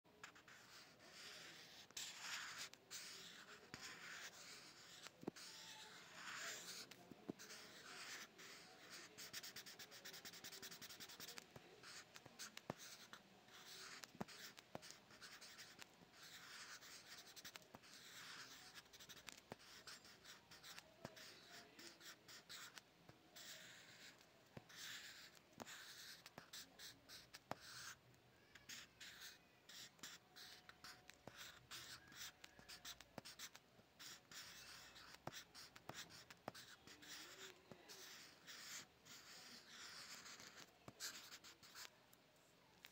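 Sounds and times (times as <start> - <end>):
pen scratching on paper: 0.2 - 41.9.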